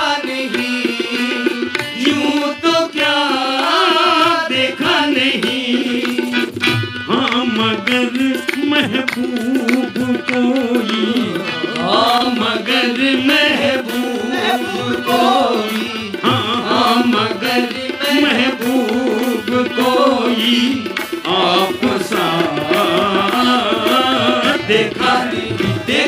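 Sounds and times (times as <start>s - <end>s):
tabla strokes: 0.0s - 26.0s
person singing: 7.1s - 26.0s.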